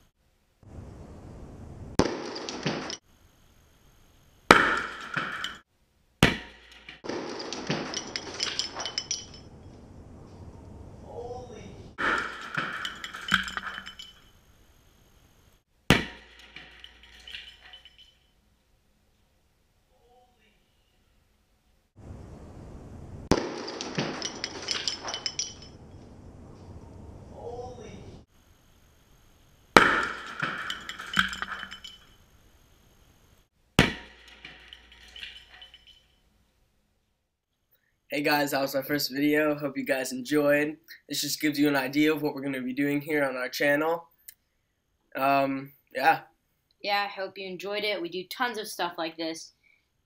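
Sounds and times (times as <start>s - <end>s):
sharp bang of wood bursting: 2.0s - 3.0s, 4.5s - 5.6s, 6.2s - 8.4s, 15.9s - 16.8s, 23.2s - 25.1s, 29.8s - 30.9s, 33.8s - 34.9s
debris clattering: 4.5s - 5.6s, 6.2s - 9.9s, 12.0s - 14.6s, 15.9s - 18.2s, 23.3s - 26.2s, 29.8s - 32.4s, 33.8s - 36.2s
birdhouse bursting with a bang: 6.2s - 8.0s, 15.9s - 16.6s, 33.8s - 34.4s.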